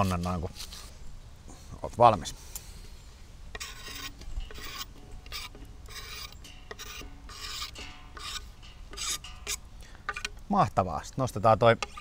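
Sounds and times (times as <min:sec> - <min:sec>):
knife scraping on cutting board: 0:03.6 - 0:10.3.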